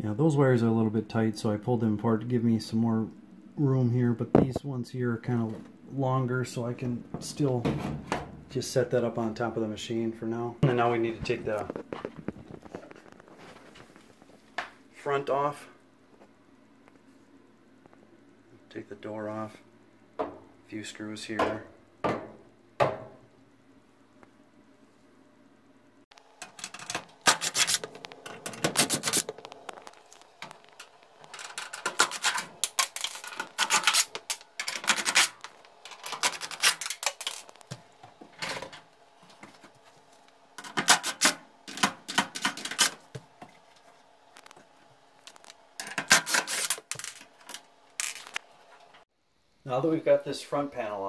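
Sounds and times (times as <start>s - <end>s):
screws scraping and clicking: 26.4s - 29.8s, 30.4s - 37.6s.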